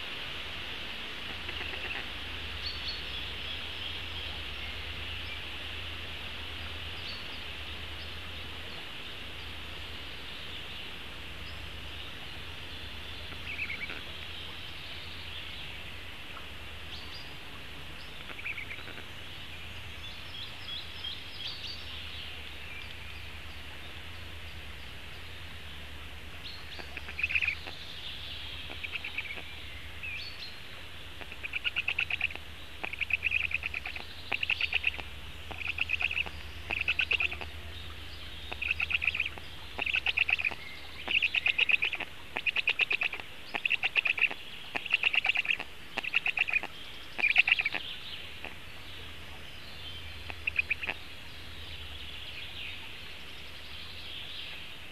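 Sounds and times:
low hum: 0.0s - 54.9s
steady high hiss: 0.0s - 54.9s
birds chirping: 6.5s - 54.9s.

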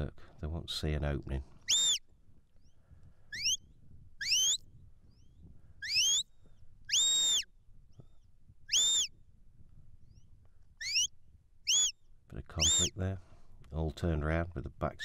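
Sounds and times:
sharp high whistle blasts: 1.7s - 2.0s, 3.3s - 3.6s, 4.2s - 4.6s, 5.8s - 6.2s, 6.9s - 7.5s, 8.7s - 9.1s, 11.7s - 11.9s, 12.6s - 12.9s.

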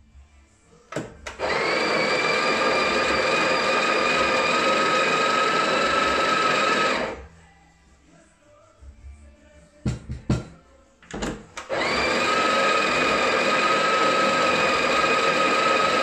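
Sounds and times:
coffee grinder whirring: 1.3s - 7.2s, 11.6s - 16.0s.

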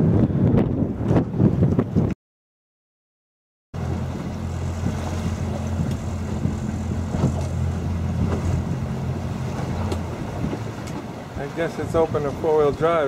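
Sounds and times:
wind on microphone: 0.0s - 2.2s, 3.8s - 13.0s
boat engine humming: 3.8s - 13.0s
water noise: 3.8s - 13.0s.

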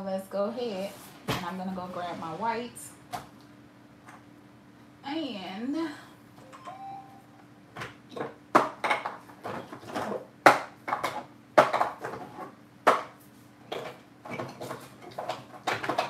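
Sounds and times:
plastic jars and lids clattering: 13.7s - 16.0s.

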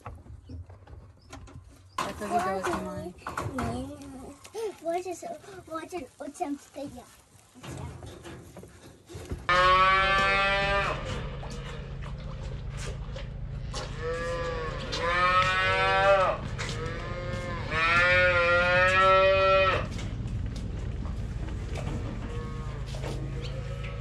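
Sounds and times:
steady low hum: 9.4s - 24.0s
cow mooing: 9.5s - 12.0s, 13.6s - 19.9s, 22.2s - 24.0s.

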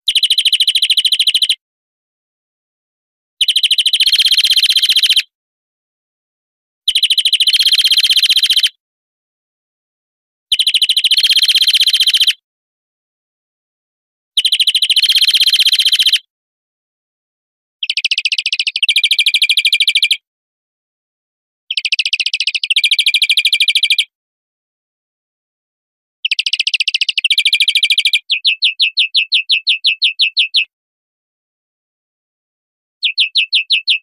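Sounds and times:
finch song trills: 0.1s - 1.6s, 3.4s - 5.2s, 6.9s - 8.7s, 14.4s - 16.2s, 17.8s - 20.2s, 26.2s - 30.7s, 33.0s - 34.0s.

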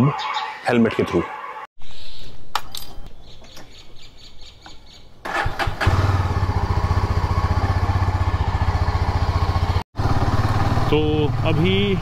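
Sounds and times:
motorcycle engine starting: 5.2s - 12.0s
motorcycle engine idling: 5.3s - 12.0s.

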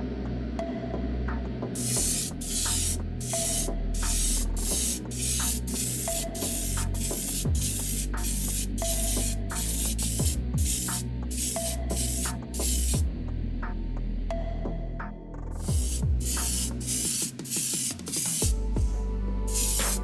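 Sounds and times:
background music: 0.0s - 20.0s
airbrush spraying hissing bursts: 1.8s - 13.0s, 15.7s - 18.6s, 19.5s - 20.0s.

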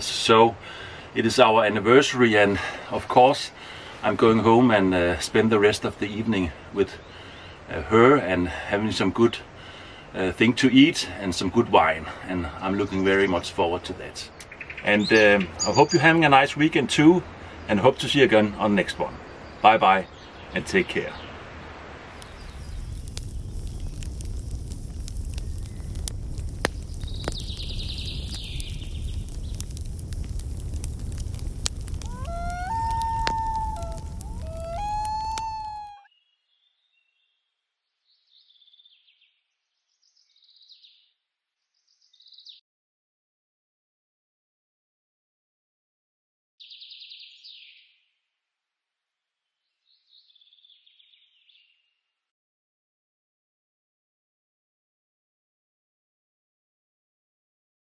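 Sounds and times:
songbird singing: 12.6s - 16.6s, 17.5s - 21.4s, 22.2s - 24.8s, 26.6s - 42.6s, 46.6s - 48.1s, 49.4s - 52.0s
campfire crackling and popping: 22.0s - 36.0s
bird trill: 32.0s - 37.0s.

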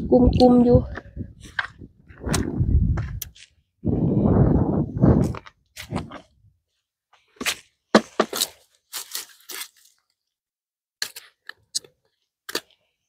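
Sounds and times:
oyster shells crunching and clacking: 11.0s - 12.8s.

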